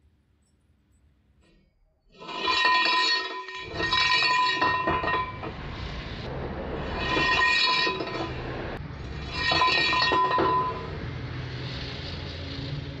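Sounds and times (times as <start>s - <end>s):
metal pipe clinking against steel: 2.2s - 5.6s, 9.3s - 10.9s.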